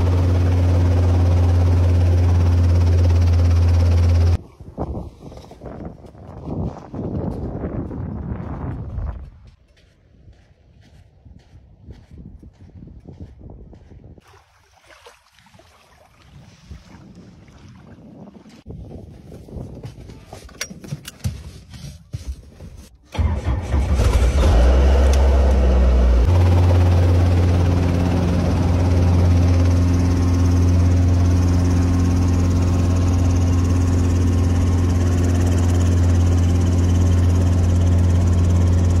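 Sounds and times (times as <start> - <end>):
helicopter engine and rotor drone: 0.0 - 4.4, 24.9 - 39.0.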